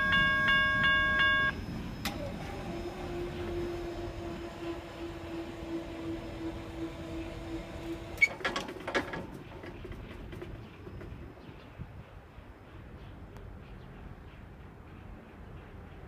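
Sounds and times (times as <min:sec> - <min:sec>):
railroad crossing bell ringing: 0:00.0 - 0:06.6
crossing gate clanks: 0:07.9 - 0:11.0.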